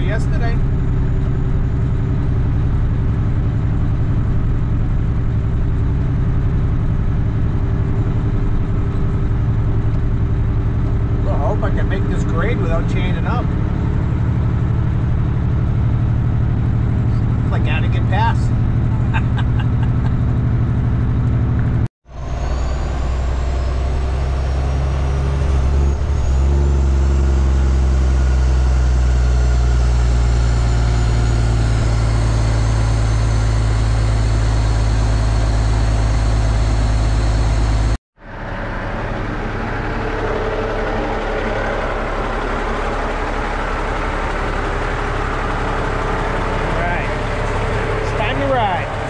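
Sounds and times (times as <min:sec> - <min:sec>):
truck diesel engine droning: 0:00.0 - 0:49.0.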